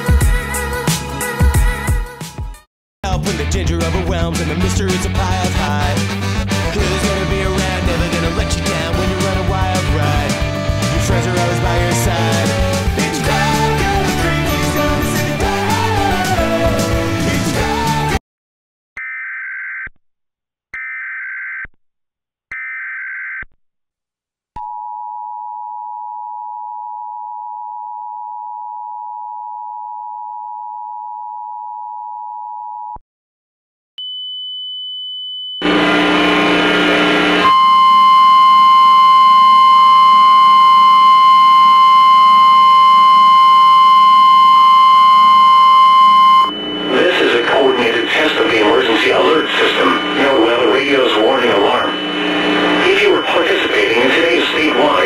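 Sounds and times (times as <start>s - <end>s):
pure high-pitched tone: 34.0s - 55.0s
noisy jumble of tones: 35.6s - 55.0s
strong steady tone: 35.6s - 55.0s
two-tone attention signal: 37.4s - 55.0s
buzzy data bursts: 46.4s - 55.0s.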